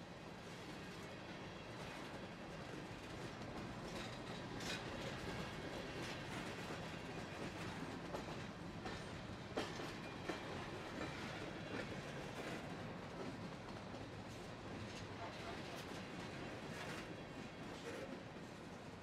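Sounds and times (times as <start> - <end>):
train wheels rumbling on rail: 0.1 - 19.0.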